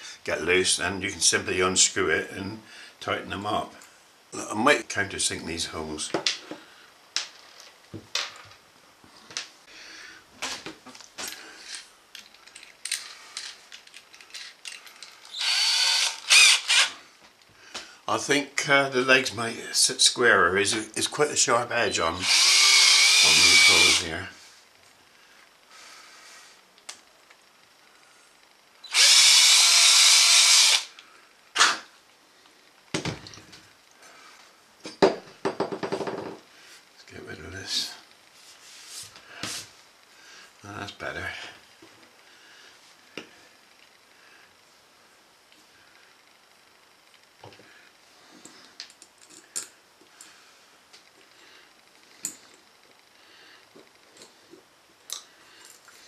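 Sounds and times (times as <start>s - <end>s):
drill motor running: 15.3s - 17.0s, 22.2s - 24.1s, 28.8s - 30.9s.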